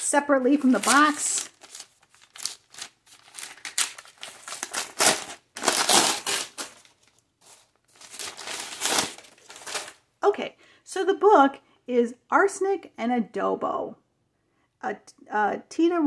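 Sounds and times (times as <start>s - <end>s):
paper wrapping rustling and crinkling: 0.0s - 10.0s.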